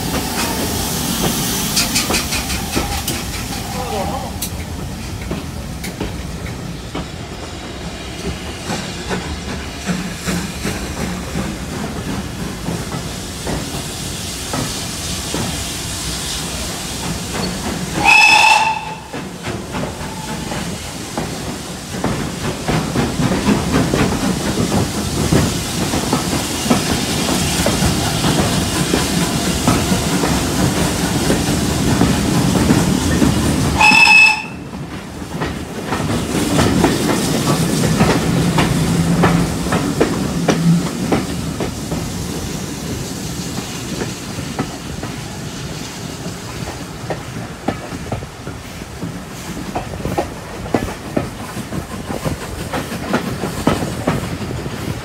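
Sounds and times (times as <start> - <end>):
steam train running: 0.0 - 55.0
steam whistle blast: 18.0 - 19.2, 33.8 - 34.7.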